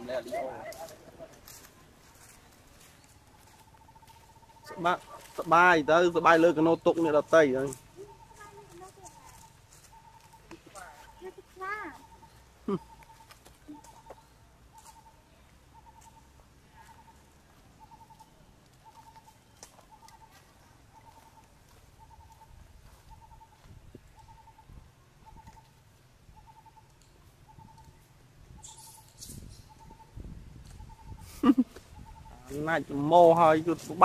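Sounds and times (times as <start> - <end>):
bird trilling: 3.3 - 15.2, 17.8 - 20.4, 21.0 - 21.4, 22.0 - 22.5, 24.2 - 25.7, 26.4 - 30.2, 30.8 - 34.0.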